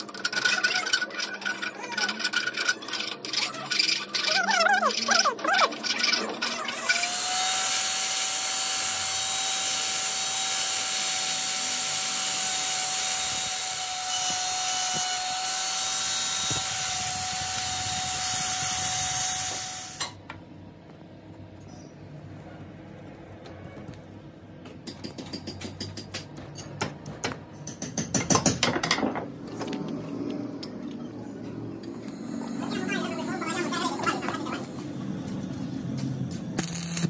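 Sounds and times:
die grinder whining: 0.0s - 20.2s, 36.6s - 37.0s.

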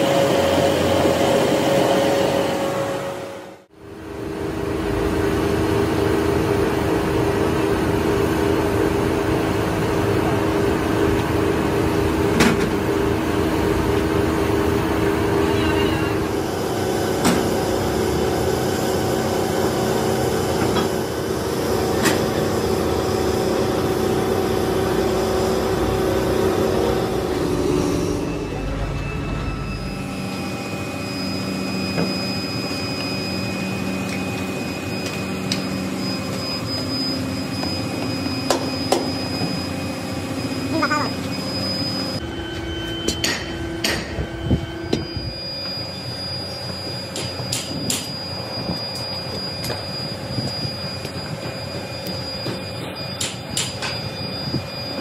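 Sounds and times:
furnace and blower roaring: 0.0s - 55.0s
sharp metal knocks: 43.1s - 44.1s.

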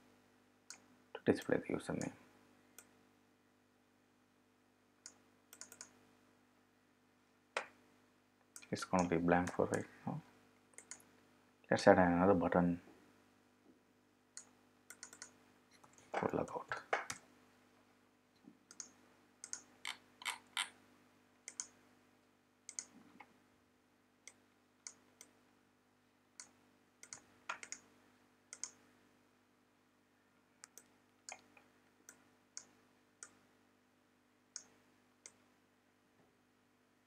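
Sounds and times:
faint steady hum: 0.0s - 37.0s
computer mouse clicks: 0.7s - 0.9s, 5.0s - 6.0s, 10.7s - 11.1s, 14.4s - 16.3s, 18.7s - 20.8s, 21.5s - 21.8s, 22.7s - 23.3s, 24.2s - 25.4s, 26.4s - 27.9s, 28.5s - 28.8s, 30.6s - 33.4s, 34.5s - 35.4s.

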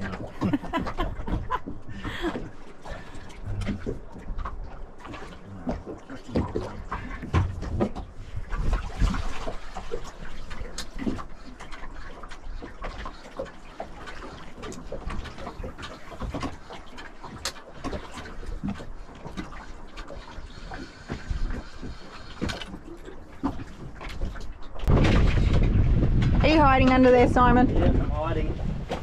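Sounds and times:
low steady rumble: 0.0s - 6.0s, 24.6s - 29.0s
water noise: 0.0s - 29.0s.

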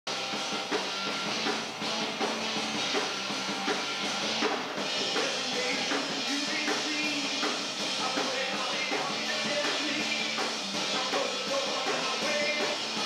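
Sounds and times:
bass: 0.1s - 13.0s
drum kit steady beat: 0.1s - 13.0s
guitar: 0.1s - 13.0s
rock band playing live: 0.1s - 13.0s.

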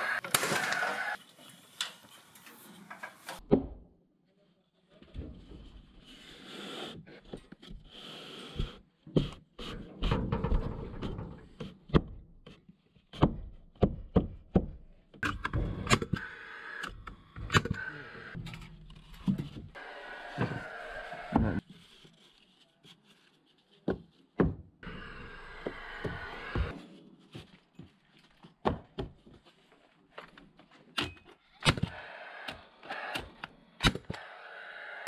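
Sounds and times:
wood panels knocking and thudding: 9.2s - 12.3s.

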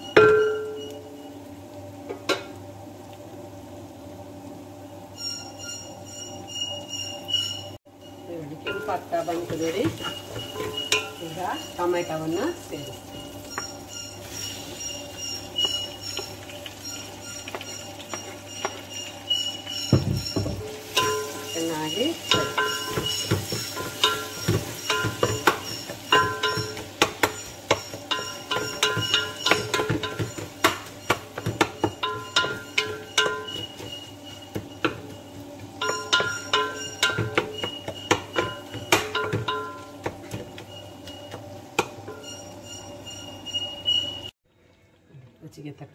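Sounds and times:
metal pot ringing: 0.0s - 1.4s, 5.1s - 44.3s
wooden spatula knocking pot: 8.7s - 13.8s, 19.9s - 42.4s.

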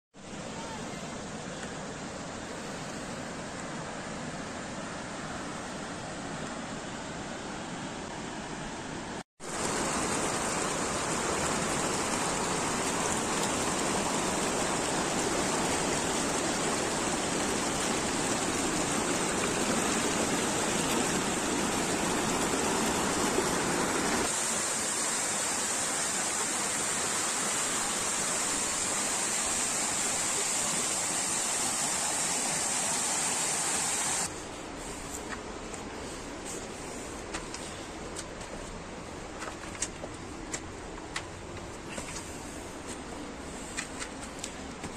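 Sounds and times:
small waterfall splashing: 9.4s - 34.3s
river flowing over rocks: 9.4s - 34.8s.

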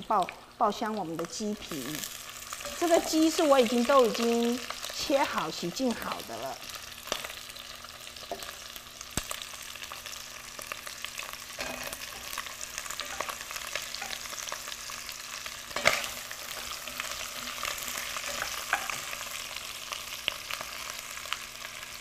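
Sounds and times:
chicken sizzling in oil: 0.0s - 22.0s
crackling pops: 8.2s - 10.0s.

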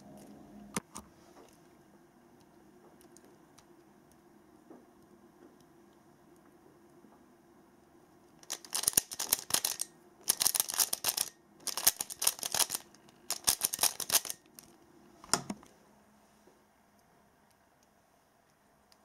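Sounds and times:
rapid plastic puzzle clicks: 8.4s - 14.8s.

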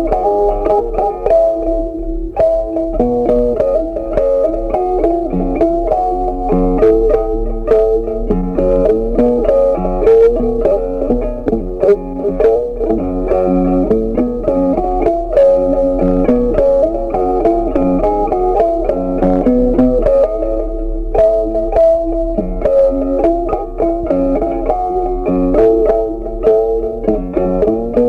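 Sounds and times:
low bass line: 0.0s - 28.0s
plucked guitar: 0.0s - 28.0s.

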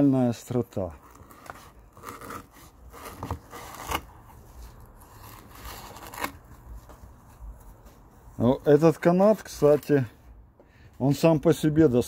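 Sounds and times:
knife cutting rope: 1.0s - 6.8s.

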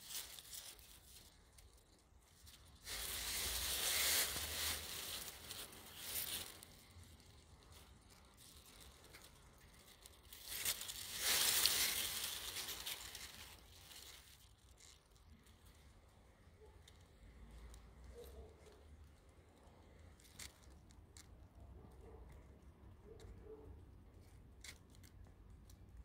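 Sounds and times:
leaves rustling: 0.0s - 16.2s.

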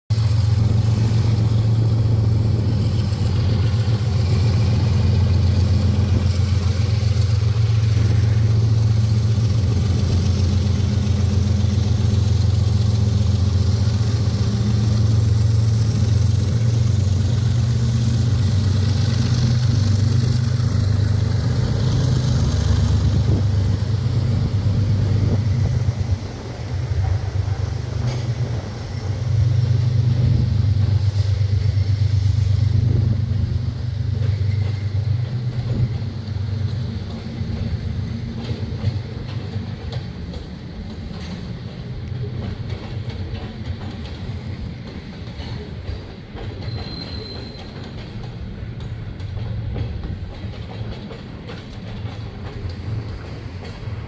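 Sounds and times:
locomotive engine drone: 0.1s - 54.0s.

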